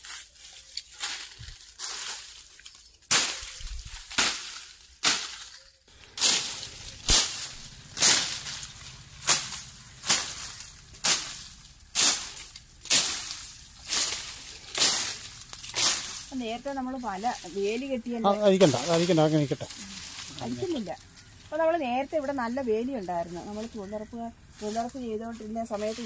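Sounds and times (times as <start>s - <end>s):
swishing chops through weeds: 3.1s - 16.3s.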